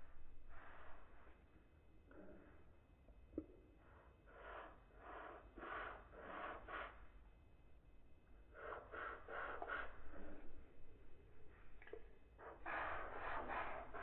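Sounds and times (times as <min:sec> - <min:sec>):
marker scratching on paper: 0:12.6 - 0:14.0.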